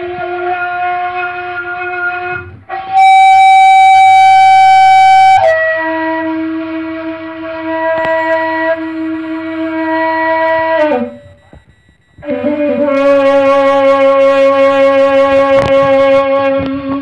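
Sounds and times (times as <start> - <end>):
bamboo flute playing long notes: 0.0 - 8.8, 12.2 - 17.0.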